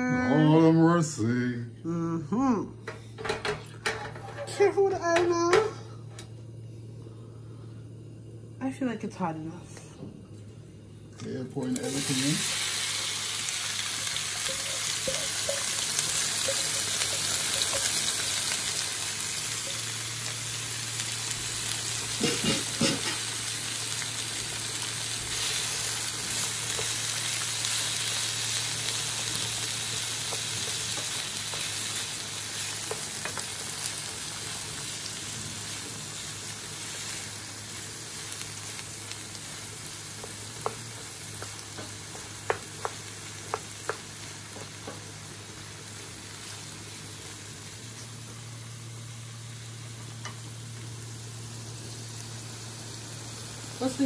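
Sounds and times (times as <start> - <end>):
low steady hum: 0.0 - 54.0
vegetables sizzling in hot oil: 11.5 - 54.0.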